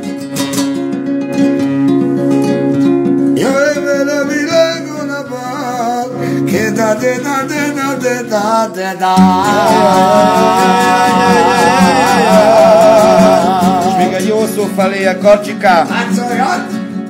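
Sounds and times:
strummed acoustic guitar: 0.0s - 17.0s
person singing: 3.4s - 15.2s.

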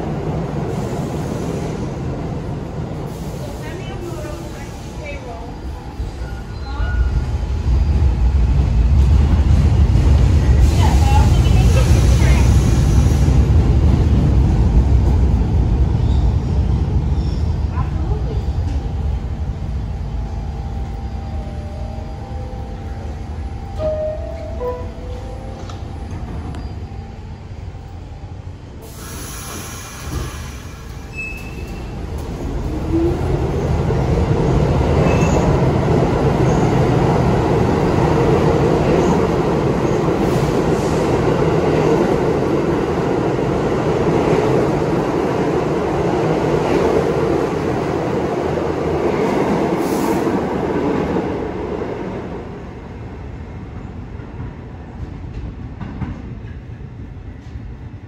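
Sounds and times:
subway train rumble: 0.0s - 58.0s
train wheel squeals: 28.9s - 32.0s, 35.0s - 35.6s.

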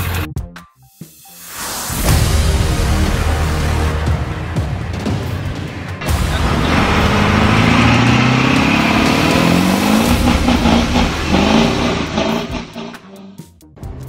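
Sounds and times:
vehicle engine revving: 2.8s - 14.0s.

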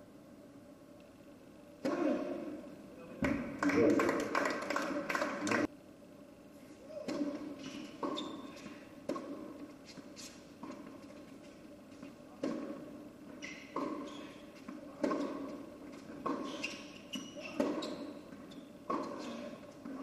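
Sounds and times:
tennis ball hit by rackets: 7.0s - 8.2s, 9.0s - 9.6s, 12.4s - 12.9s, 13.6s - 14.1s, 14.7s - 16.6s, 17.5s - 17.9s, 18.8s - 19.4s.

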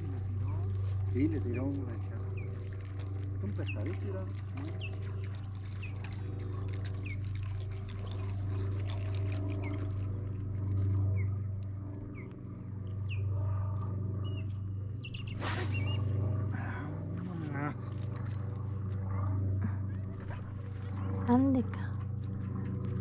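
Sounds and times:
steady low hum: 0.0s - 23.0s
small birds chirping: 0.1s - 19.3s
fishing rod swishing: 15.3s - 17.2s.

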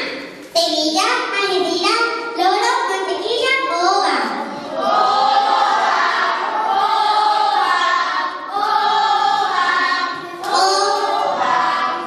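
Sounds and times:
group of voices singing: 4.5s - 12.0s.

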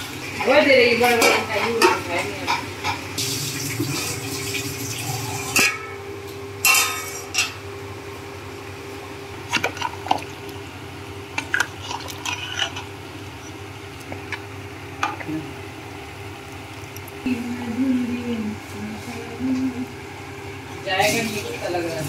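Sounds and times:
steady low hum: 0.0s - 22.0s
gravy sloshing: 9.3s - 17.3s.

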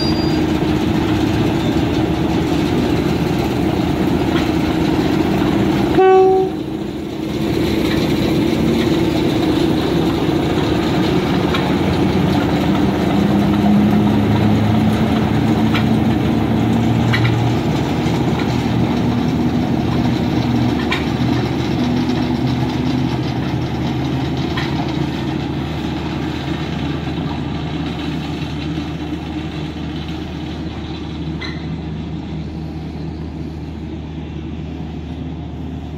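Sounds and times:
wheels clicking over rail joints: 0.0s - 34.2s
diesel engine running: 0.0s - 35.9s
locomotive horn blast: 5.9s - 6.8s.

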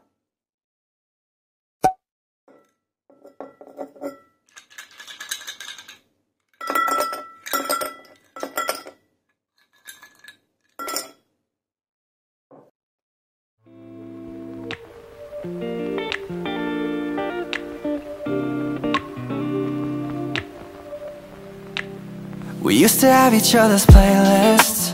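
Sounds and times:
ice cubes clinking in a glass: 3.9s - 6.0s, 6.6s - 9.0s.

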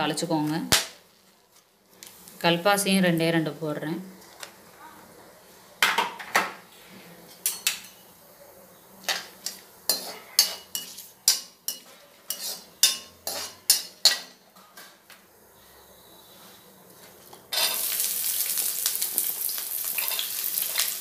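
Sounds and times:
metal spoon scraping a pan: 9.0s - 15.0s, 17.0s - 18.1s, 19.8s - 21.0s.

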